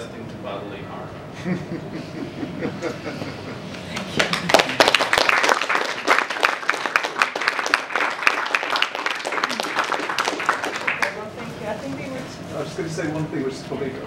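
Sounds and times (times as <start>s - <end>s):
audience applauding: 3.9s - 11.4s.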